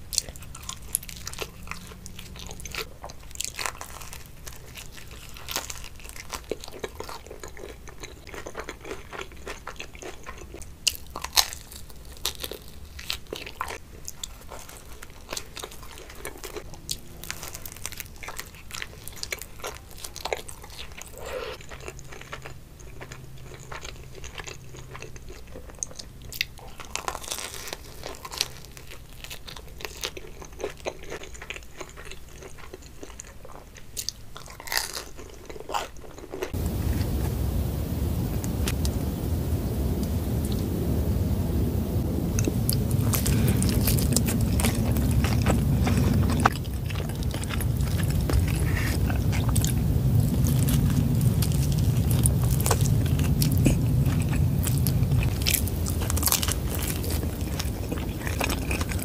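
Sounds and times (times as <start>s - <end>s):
chewing pizza: 0.0s - 38.2s, 42.0s - 59.0s
crisp crunches: 42.3s - 59.0s.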